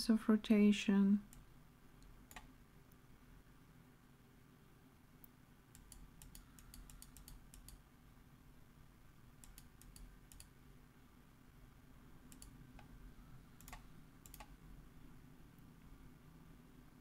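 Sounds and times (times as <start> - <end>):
low steady hum: 0.0 - 17.0
computer mouse clicks: 1.3 - 2.5, 5.7 - 7.8, 9.4 - 10.5, 12.3 - 13.0, 13.6 - 14.6.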